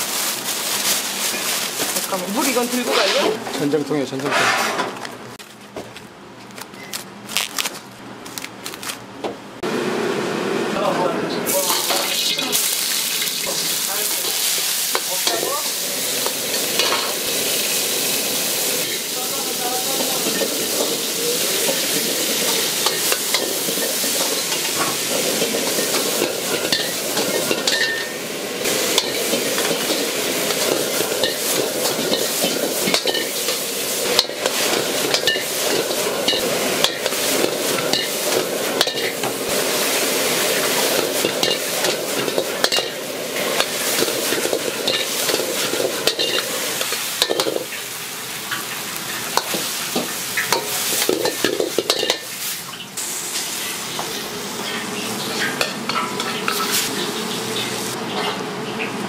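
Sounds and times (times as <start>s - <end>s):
food sizzling in a wok: 0.0s - 3.6s, 11.4s - 59.0s
metal ladle scraping a pan: 2.7s - 3.5s, 4.2s - 5.0s.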